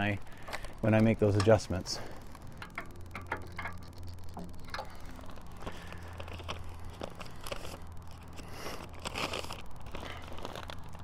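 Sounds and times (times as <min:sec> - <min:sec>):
steady low hum: 0:00.0 - 0:11.0
paper being handled: 0:05.3 - 0:11.0.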